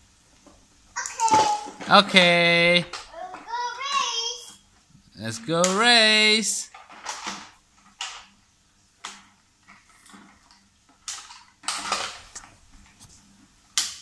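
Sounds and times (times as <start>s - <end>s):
plastic toy cars clacking: 1.0s - 4.4s, 6.6s - 8.4s, 9.0s - 13.0s.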